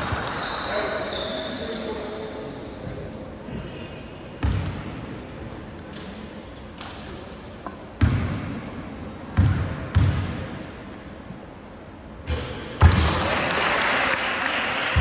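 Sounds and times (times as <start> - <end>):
spectators cheering and clapping: 12.8 - 15.0.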